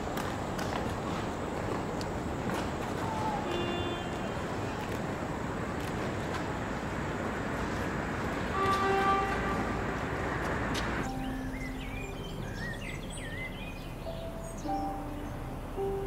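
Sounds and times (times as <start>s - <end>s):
outdoor town noise: 0.0s - 16.0s
birds chirping: 8.0s - 16.0s
low sustained notes: 11.0s - 16.0s.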